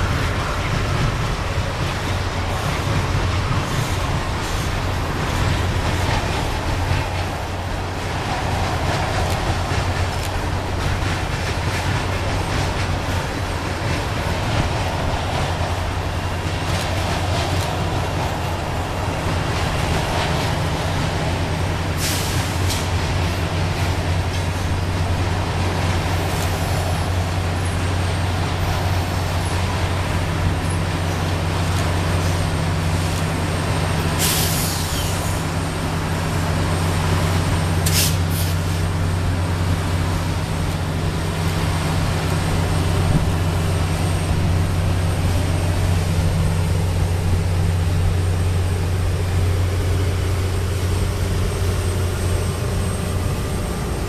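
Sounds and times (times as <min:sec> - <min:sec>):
locomotive diesel drone: 0:00.0 - 0:54.0
air hissing: 0:21.9 - 0:23.0, 0:34.0 - 0:35.5, 0:37.8 - 0:39.0.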